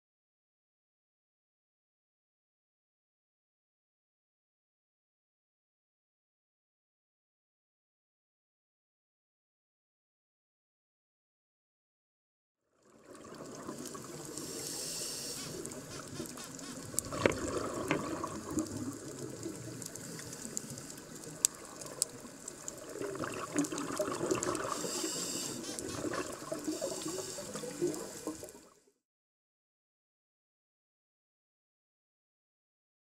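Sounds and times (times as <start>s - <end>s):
water gurgling underwater: 15.7s - 20.0s, 21.3s - 24.9s, 25.7s - 28.7s.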